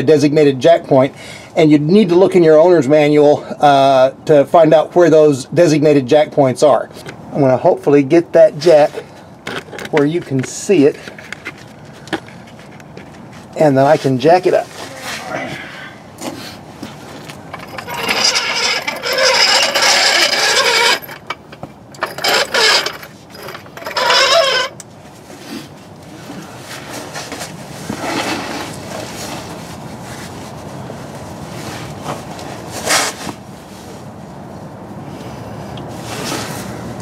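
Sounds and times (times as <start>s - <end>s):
floor jack rolling on concrete: 17.2s - 24.8s.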